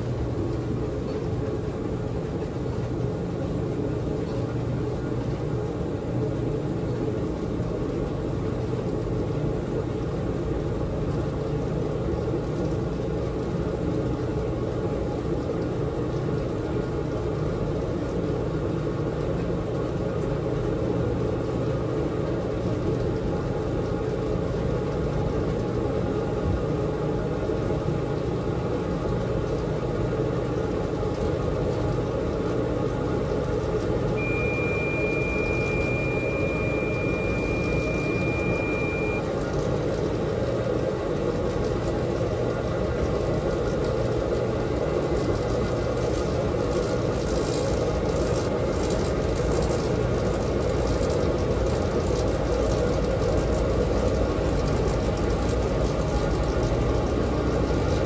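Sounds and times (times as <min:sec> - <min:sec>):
washing machine drum spinning: 0:00.0 - 0:58.0
steady high beep: 0:34.2 - 0:39.3.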